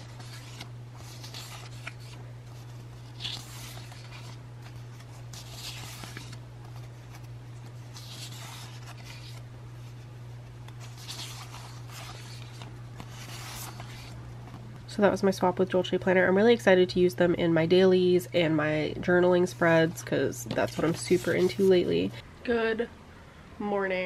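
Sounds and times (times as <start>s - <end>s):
paper sheets rustling: 0.0s - 14.6s, 19.4s - 22.2s
steady low hum: 0.0s - 24.0s.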